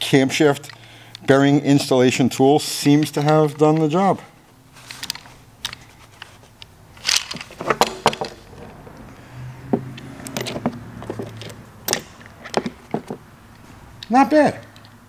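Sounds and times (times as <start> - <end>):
metal parts moved in plastic case: 4.8 - 9.0, 10.2 - 13.2
metal bar laid on wooden bench: 7.1 - 9.0.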